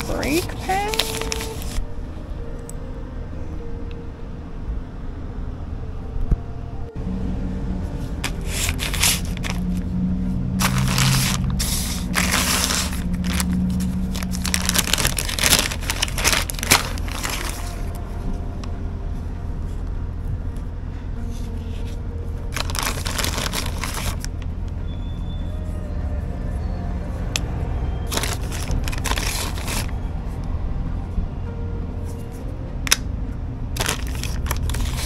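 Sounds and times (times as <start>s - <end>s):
plastic bag crinkling: 0.0s - 1.8s, 8.2s - 9.8s, 10.6s - 18.0s, 22.5s - 24.4s, 28.1s - 30.0s, 33.8s - 35.0s
low rumble: 0.0s - 34.9s.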